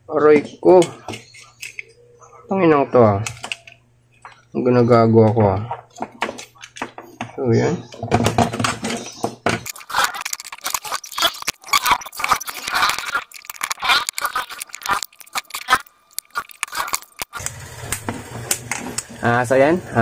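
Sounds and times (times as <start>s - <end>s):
plastic parts scraping and clicking: 7.9s - 19.1s.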